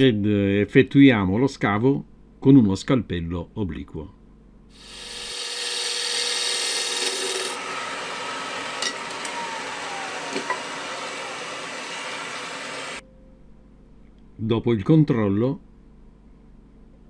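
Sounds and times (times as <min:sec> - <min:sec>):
lathe tool shaving wood: 0:04.8 - 0:13.0.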